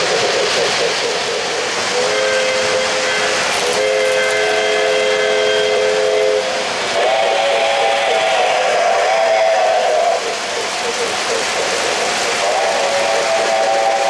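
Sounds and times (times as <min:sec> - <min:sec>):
model trains rumbling on track: 0:00.0 - 0:14.0
chime steam whistle: 0:01.9 - 0:10.2, 0:12.4 - 0:14.0.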